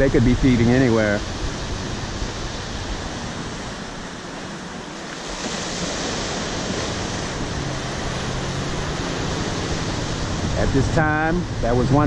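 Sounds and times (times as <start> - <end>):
ocean surf breaking: 0.0 - 12.0
wind on the microphone: 0.0 - 12.0.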